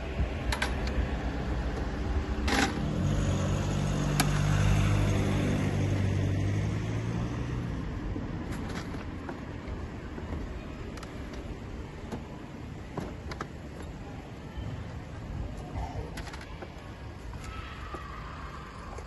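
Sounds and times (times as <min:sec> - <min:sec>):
low vehicle engine hum: 0:00.0 - 0:19.0
wheelchair metal clicks and clatter: 0:01.7 - 0:03.1, 0:08.4 - 0:12.3, 0:12.9 - 0:14.0, 0:15.6 - 0:18.1.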